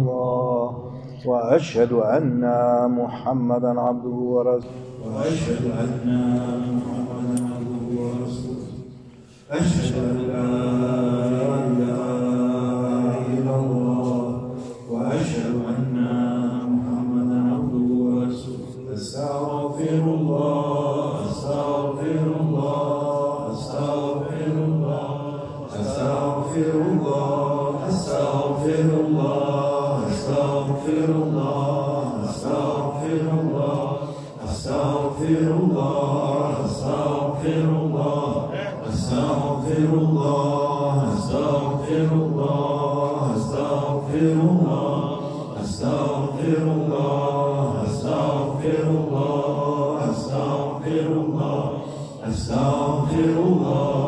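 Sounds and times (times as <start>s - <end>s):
men chanting devotional phrase: 0.0s - 54.0s.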